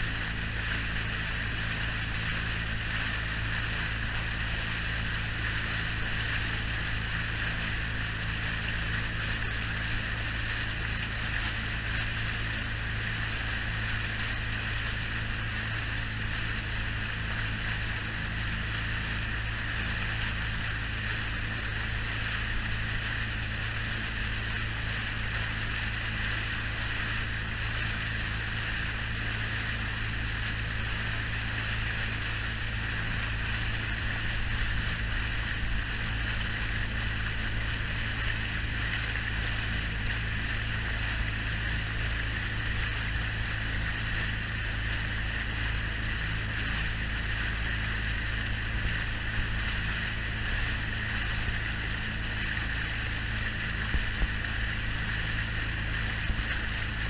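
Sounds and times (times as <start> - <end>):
boat engine droning: 0.0 - 57.0
water rushing along hull: 0.0 - 57.0
wind: 0.0 - 57.0.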